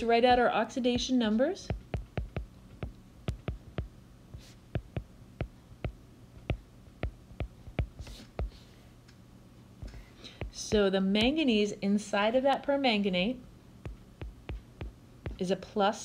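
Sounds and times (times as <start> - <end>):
stylus tapping on glass screen: 0.3 - 8.6, 9.8 - 11.4, 13.8 - 15.5.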